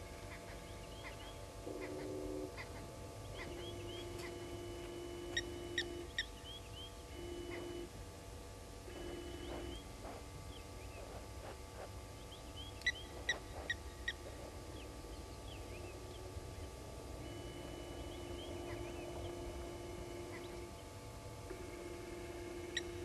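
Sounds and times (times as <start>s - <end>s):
birds chirping: 0.1s - 7.9s, 8.9s - 21.0s
sharp bird calls: 0.3s - 4.5s, 12.2s - 16.3s, 17.5s - 20.9s
camera pan motor hum: 8.9s - 10.3s, 17.2s - 20.8s.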